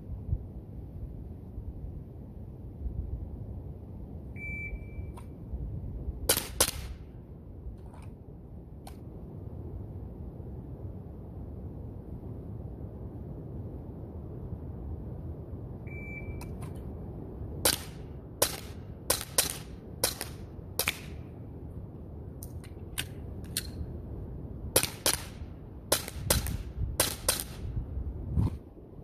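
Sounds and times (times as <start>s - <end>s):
wind on microphone: 0.0s - 29.0s
short high beep: 4.4s - 5.2s, 15.9s - 16.5s
air pistol firing pops: 6.3s - 7.0s, 17.6s - 21.2s, 24.8s - 27.6s.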